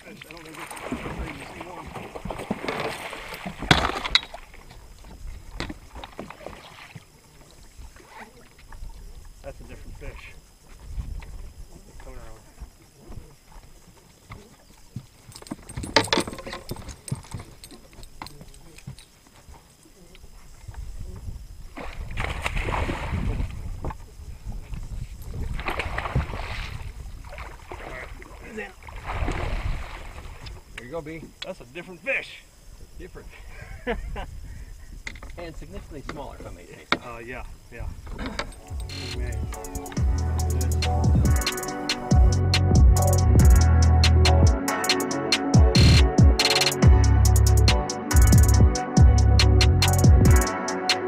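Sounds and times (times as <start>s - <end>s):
fish splashing at surface: 25.6s - 30.4s.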